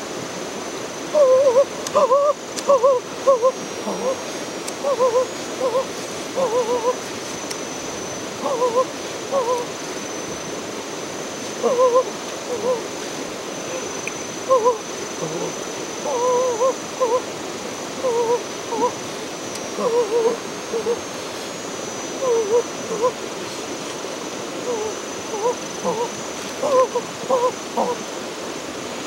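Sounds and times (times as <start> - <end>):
faint high insect drone: 0.0 - 29.0
steady hiss: 0.0 - 29.0
bird calling: 1.1 - 10.4, 11.5 - 13.0, 13.6 - 17.3, 17.9 - 23.7, 24.6 - 28.1.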